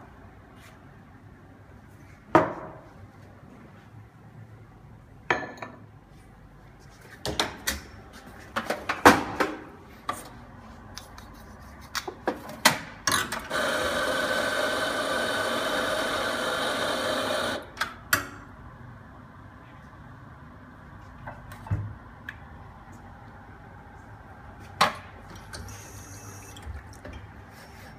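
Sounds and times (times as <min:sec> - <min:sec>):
espresso grinder running: 0:13.5 - 0:17.7.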